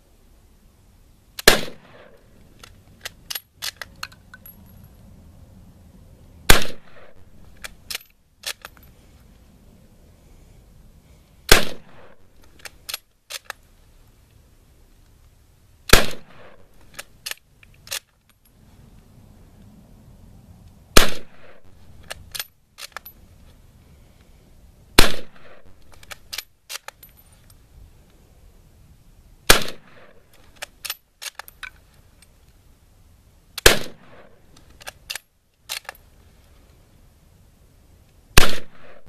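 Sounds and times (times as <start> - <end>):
rifle shots: 1.4 - 2.2, 6.5 - 8.0, 11.5 - 12.2, 15.9 - 16.7, 21.0 - 21.7, 25.0 - 25.9, 29.5 - 30.2, 33.6 - 34.4, 38.4 - 39.0
rifle bolt clicks: 1.4 - 4.5, 7.5 - 8.9, 12.4 - 13.6, 22.0 - 23.2, 25.4 - 27.2, 29.5 - 31.8, 34.5 - 36.0.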